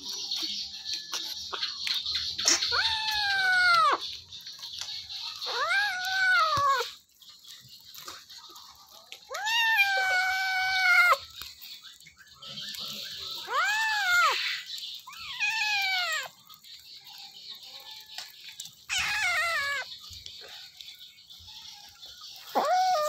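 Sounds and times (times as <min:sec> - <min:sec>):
kitten yowling: 0:02.7 - 0:04.0, 0:05.4 - 0:06.9, 0:09.3 - 0:11.3, 0:13.4 - 0:16.3, 0:18.9 - 0:19.9, 0:22.5 - 0:23.0.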